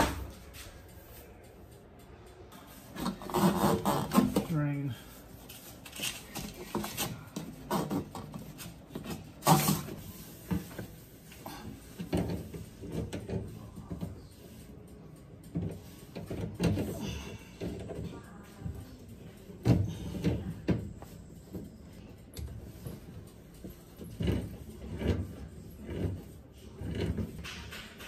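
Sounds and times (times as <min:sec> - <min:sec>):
knocks and clunks of handling: 0:11.5 - 0:14.2.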